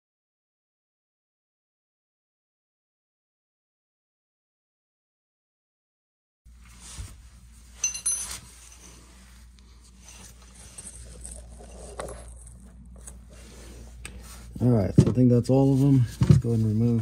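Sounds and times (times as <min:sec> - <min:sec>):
wrench and bolts clinking: 0:07.8 - 0:09.0.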